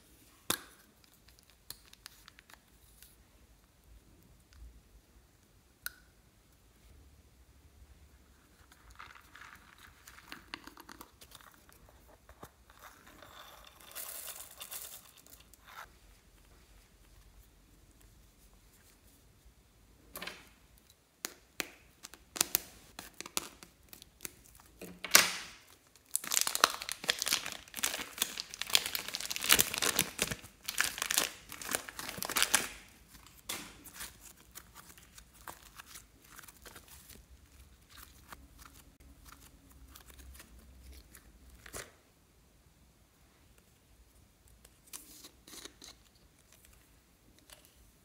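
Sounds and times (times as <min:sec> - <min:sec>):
plastic bag crinkling: 0:25.5 - 0:40.5
slime crackling: 0:26.0 - 0:41.2.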